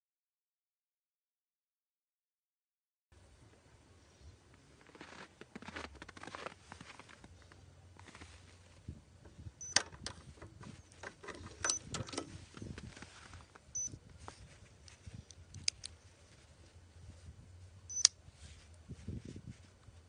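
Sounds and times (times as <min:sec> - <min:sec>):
light handling rustle: 0:04.5 - 0:20.0
padlock metallic clicks: 0:09.6 - 0:10.2, 0:11.0 - 0:12.3, 0:15.2 - 0:16.0, 0:17.9 - 0:18.2.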